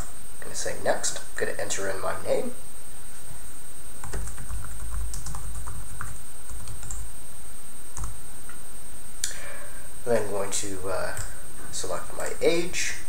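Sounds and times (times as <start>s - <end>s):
typing on laptop keyboard: 4.0s - 7.0s.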